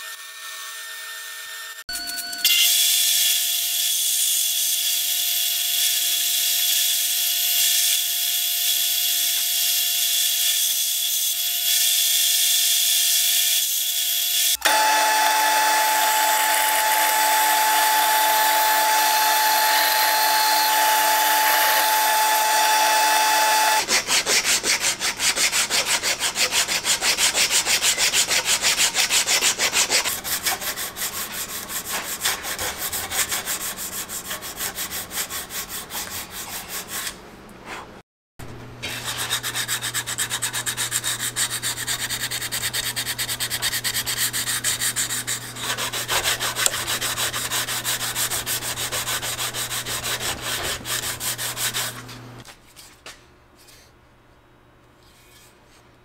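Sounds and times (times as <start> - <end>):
higher-toned power tool: 0.0 - 23.9
power tool running: 2.4 - 23.9
hand sanding wood: 14.7 - 37.2, 38.8 - 52.1.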